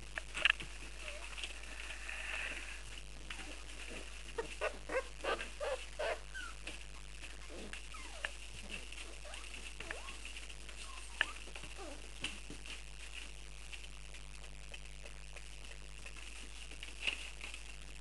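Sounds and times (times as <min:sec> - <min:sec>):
puppies whining: 0:03.3 - 0:06.7, 0:07.4 - 0:12.1
puppies yipping: 0:03.4 - 0:06.7.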